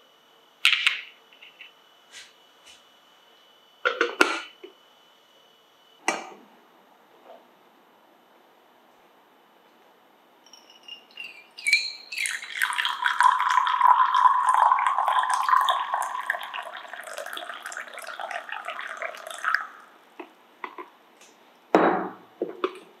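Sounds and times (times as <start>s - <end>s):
liquid pouring into glass: 10.6s - 20.0s
liquid dripping: 11.6s - 20.0s.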